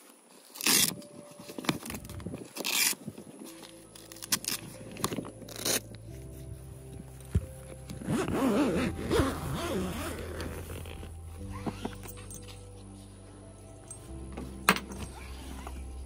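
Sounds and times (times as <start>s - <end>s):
hook-and-loop straps ripping: 0.0s - 6.5s, 7.3s - 12.8s
background music low notes: 0.0s - 16.0s
stiff cover rustling and scraping: 0.0s - 16.0s.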